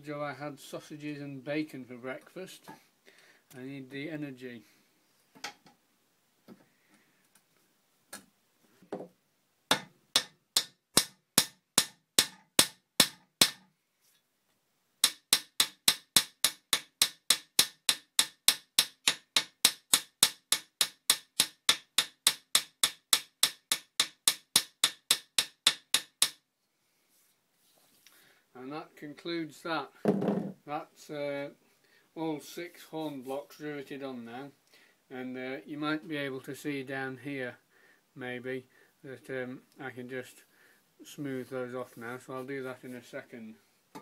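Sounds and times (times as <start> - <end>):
hammer striking steel rivets: 9.7 - 13.6.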